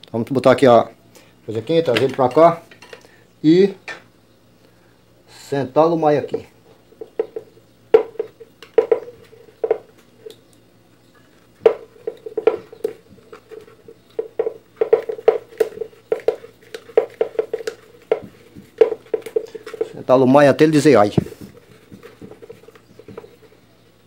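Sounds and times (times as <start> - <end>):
hard plastic clicking and knocking: 7.0 - 9.9, 11.6 - 20.0.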